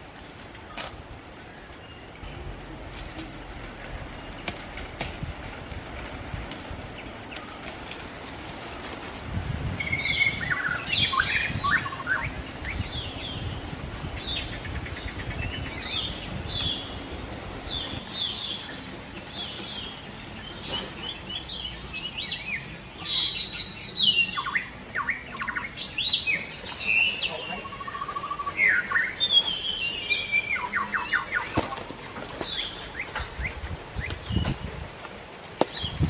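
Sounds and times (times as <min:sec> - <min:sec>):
forest birds chirping: 0:00.0 - 0:36.0.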